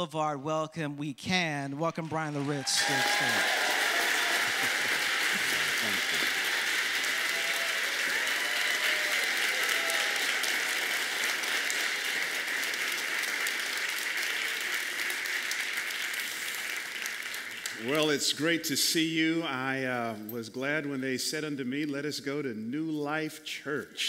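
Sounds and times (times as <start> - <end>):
crowd clapping: 1.8 - 18.6.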